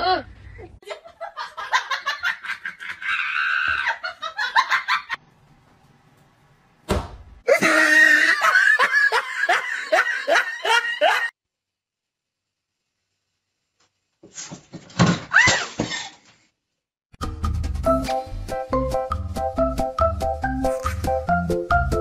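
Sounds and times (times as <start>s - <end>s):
person laughing hard: 0.8s - 5.2s, 7.5s - 11.3s
thud: 6.8s - 7.4s.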